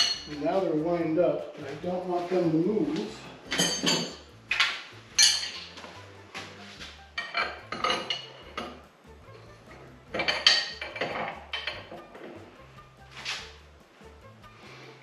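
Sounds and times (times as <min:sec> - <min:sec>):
steel wrenches clanking: 0:03.4 - 0:05.8, 0:07.2 - 0:08.8, 0:09.8 - 0:12.4.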